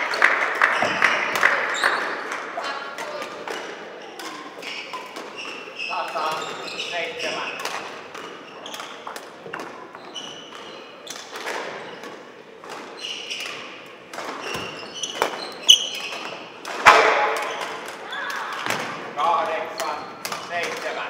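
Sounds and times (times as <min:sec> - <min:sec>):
shoes squeaking on floor: 0:00.7 - 0:02.8, 0:03.9 - 0:16.6, 0:17.4 - 0:18.8
racket striking shuttlecock: 0:10.5 - 0:18.9.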